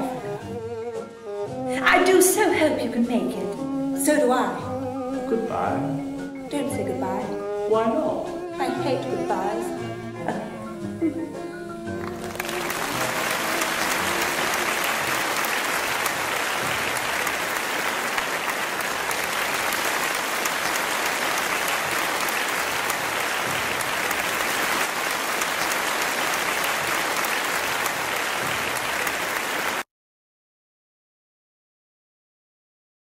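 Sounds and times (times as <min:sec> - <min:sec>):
audience applauding: 0:12.0 - 0:29.9.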